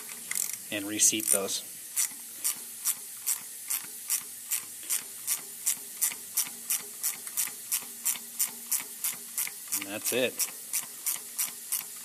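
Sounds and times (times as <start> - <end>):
ratcheting wrench clicking: 0.0 - 12.0.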